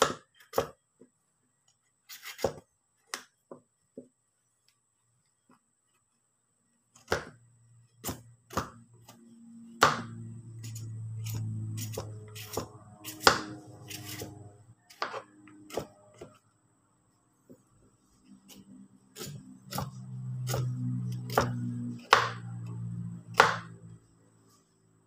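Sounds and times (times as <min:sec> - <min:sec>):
peeler scraping papaya: 0:02.1 - 0:02.6, 0:09.9 - 0:16.4
low hum: 0:07.4 - 0:25.0.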